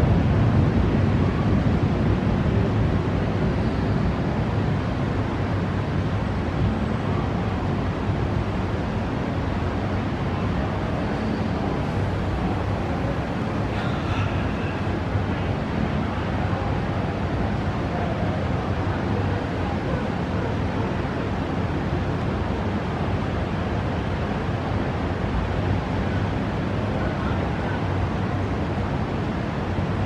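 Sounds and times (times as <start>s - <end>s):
storm wind on microphone: 0.0s - 19.9s.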